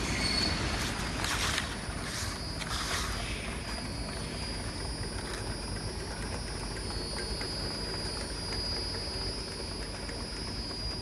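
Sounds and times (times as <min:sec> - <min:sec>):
constant high-pitched tones: 0:00.0 - 0:11.0
machine low rumble: 0:00.0 - 0:11.0.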